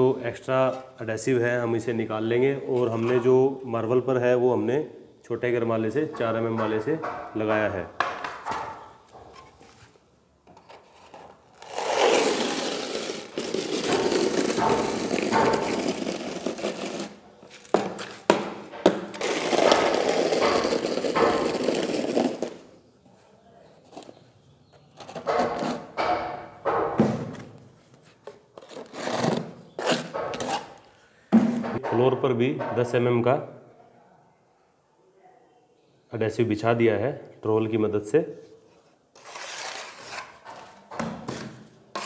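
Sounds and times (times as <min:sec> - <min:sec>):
trowel scraping tile adhesive: 0:10.6 - 0:18.4, 0:19.1 - 0:22.7, 0:25.0 - 0:26.0, 0:28.6 - 0:30.9, 0:38.7 - 0:40.8.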